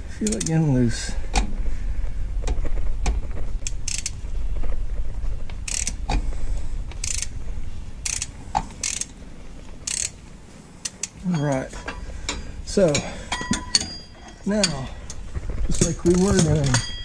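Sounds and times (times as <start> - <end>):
hand ratchet clicking: 0.2 - 0.6, 2.4 - 4.2, 5.6 - 6.2, 6.9 - 7.4, 8.0 - 9.2, 9.8 - 10.2, 10.8 - 11.3, 12.3 - 17.0.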